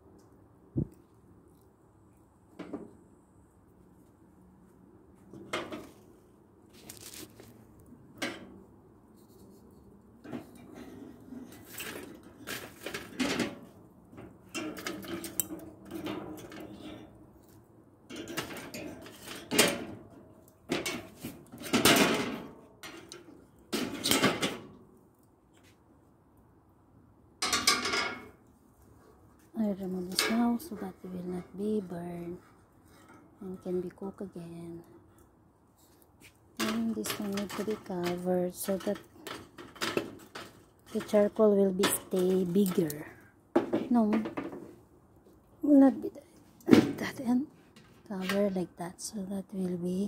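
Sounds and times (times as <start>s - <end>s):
objects knocking and clattering: 18.1s - 24.7s, 27.4s - 28.4s, 36.6s - 44.8s.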